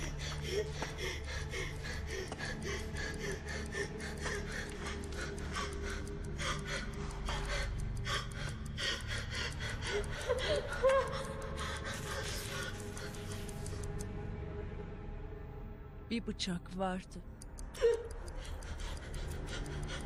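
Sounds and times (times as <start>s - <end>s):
woman whimpering cry: 9.9s - 11.9s.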